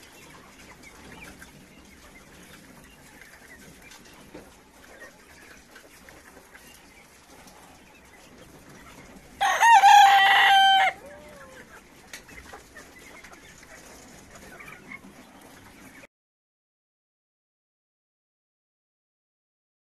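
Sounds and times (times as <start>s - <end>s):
rooster crowing: 9.4s - 11.6s.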